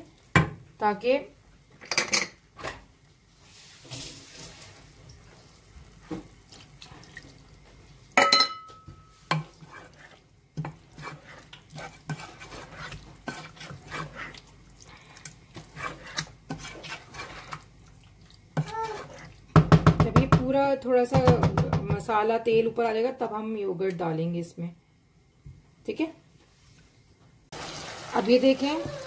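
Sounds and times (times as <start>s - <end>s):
wooden spatula scraping pot: 9.2s - 20.6s.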